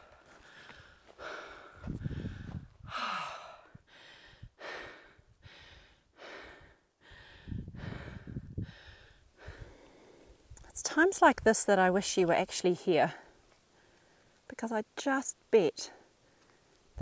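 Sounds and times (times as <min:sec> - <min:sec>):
person breathing hard and fast: 0:00.0 - 0:10.5
low rumbles on microphone: 0:01.8 - 0:03.0.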